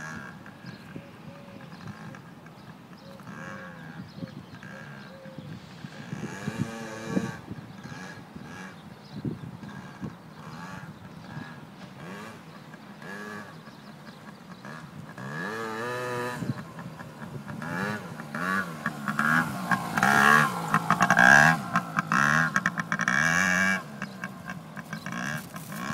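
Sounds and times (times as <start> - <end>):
two-stroke engine revving: 0.0 - 25.9.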